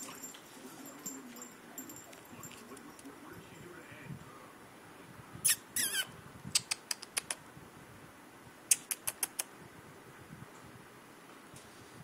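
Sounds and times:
puppy yipping: 5.5 - 6.1.

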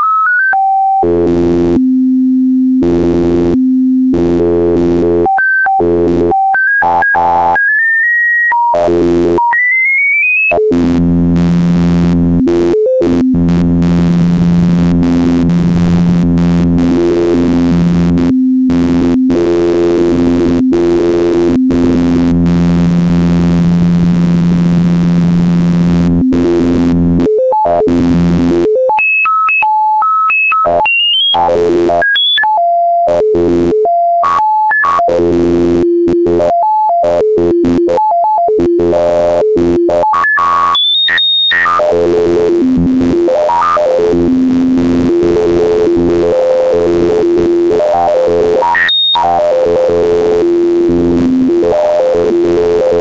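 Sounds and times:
low buzzing synth chord: 1.1 - 5.2, 10.9 - 27.2.

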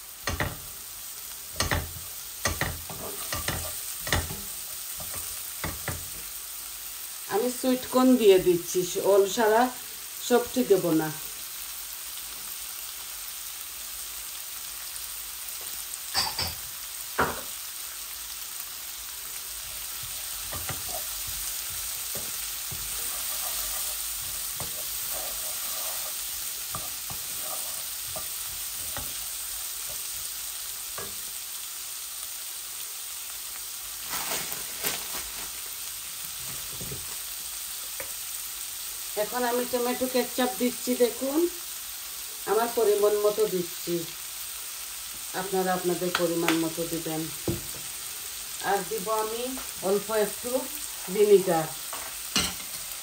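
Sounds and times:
vegetables sizzling in wok: 0.0 - 53.0
wooden spatula scraping pan: 1.6 - 6.2, 19.7 - 30.1.

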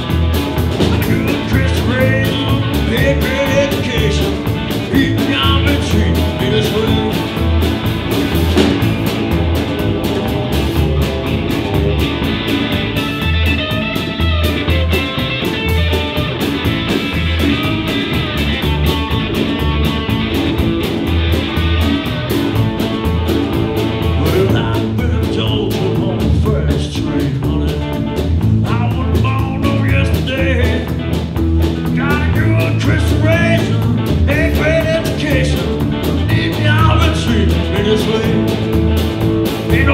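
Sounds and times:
electric guitar: 0.0 - 39.9
steady drums: 0.0 - 39.9
walking bass: 0.0 - 39.9
person singing: 0.9 - 7.4, 24.2 - 28.0, 31.9 - 38.6, 39.6 - 39.9.

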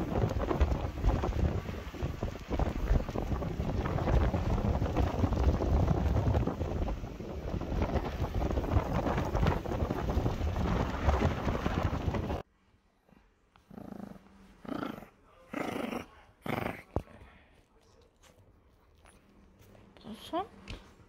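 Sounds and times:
wind buffeting microphone: 0.0 - 12.4.

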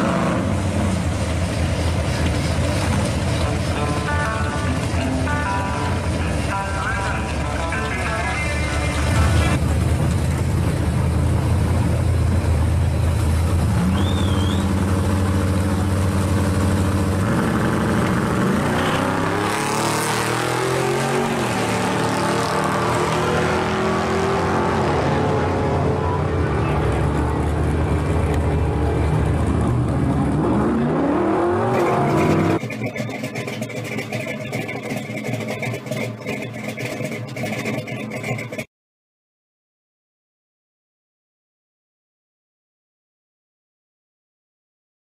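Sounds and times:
drag racing car engines revving: 0.0 - 38.7.

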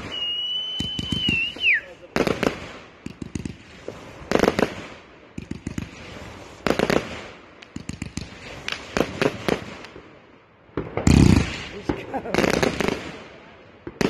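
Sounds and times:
firework shells bursting: 0.0 - 10.0
firework crackling pops: 0.0 - 14.0.

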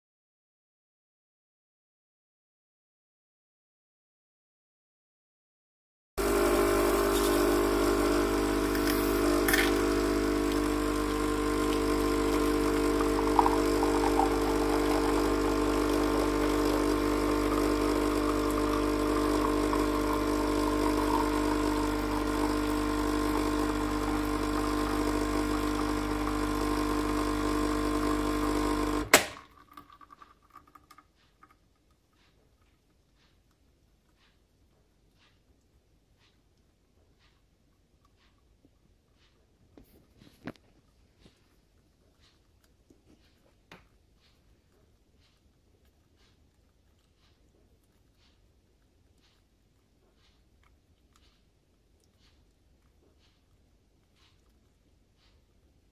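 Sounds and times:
coffee machine pump humming: 6.2 - 31.4
coffee dripping into glass: 6.4 - 31.6.

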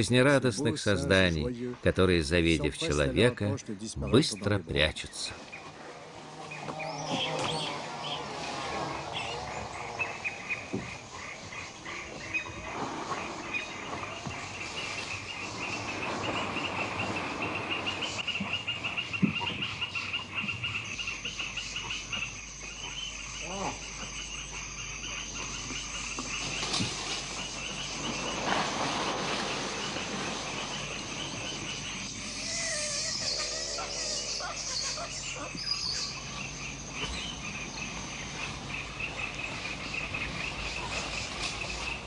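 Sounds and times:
insects buzzing: 0.0 - 42.0
animal calls: 30.1 - 37.6.

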